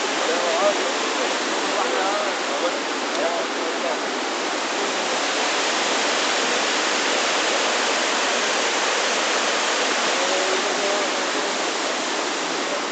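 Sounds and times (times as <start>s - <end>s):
flood water rushing down gorge: 0.0s - 12.9s.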